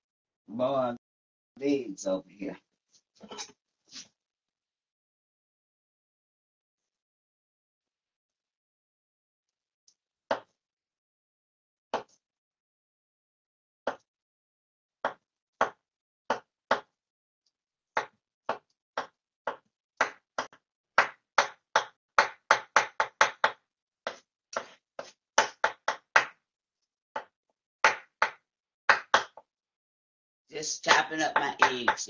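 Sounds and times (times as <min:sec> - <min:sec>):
knife chopping on wooden board: 0:10.3 - 0:10.5, 0:15.0 - 0:16.9, 0:18.0 - 0:26.4, 0:27.2 - 0:29.4.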